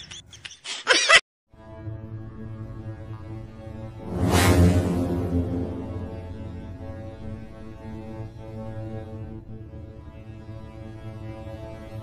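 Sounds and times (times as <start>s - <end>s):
music of long held notes: 1.9s - 12.0s
low drone: 3.8s - 9.9s.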